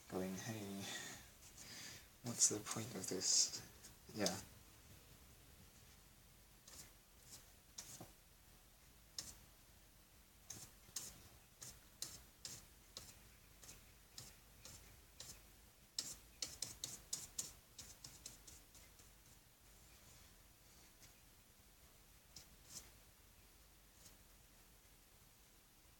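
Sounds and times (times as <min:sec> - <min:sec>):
paintbrush dabbing on paper: 0:02.3 - 0:04.5, 0:06.6 - 0:08.2, 0:09.1 - 0:09.5, 0:10.4 - 0:20.0, 0:22.2 - 0:23.1, 0:23.9 - 0:24.3.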